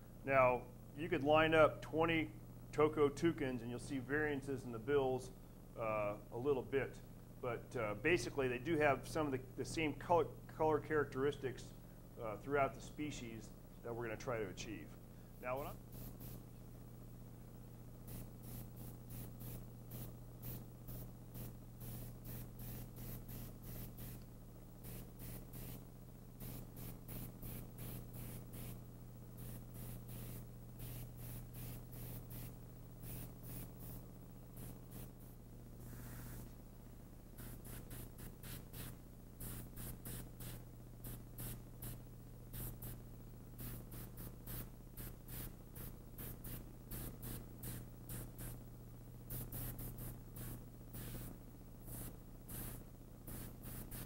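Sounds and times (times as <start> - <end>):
steady low hum: 0.0 - 54.0
airbrush spraying hissing spurts: 15.5 - 16.6, 18.0 - 25.8, 26.4 - 28.8, 29.4 - 36.6, 37.4 - 43.0, 43.6 - 48.6, 49.3 - 54.0.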